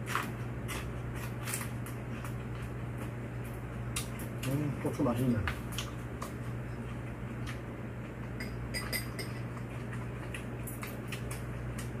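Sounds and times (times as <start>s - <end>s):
steady low hum: 0.0s - 12.0s
utensils clinking on dishes: 8.3s - 9.7s.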